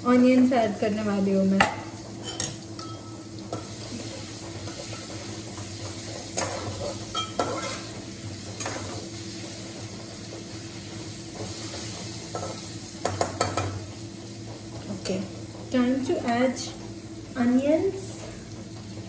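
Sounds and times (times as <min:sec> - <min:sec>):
spices sizzling in hot oil: 0:00.0 - 0:19.0
metal utensil scraping pan: 0:04.6 - 0:09.0.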